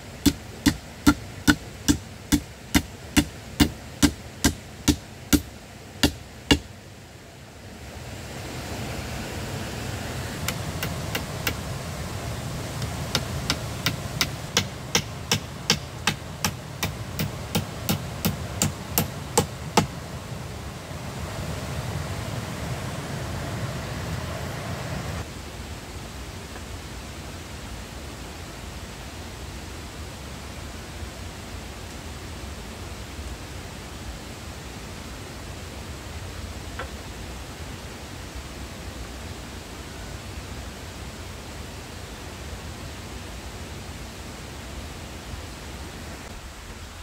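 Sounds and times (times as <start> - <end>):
steady rushing hiss: 0.0 - 47.0
hand tool striking wood: 0.2 - 6.7, 10.4 - 11.6, 12.8 - 19.9.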